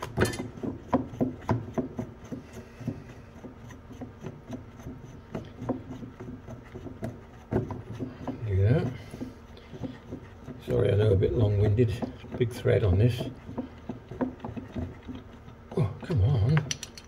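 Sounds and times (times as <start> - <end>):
nut clicking on threads: 16.5 - 17.0.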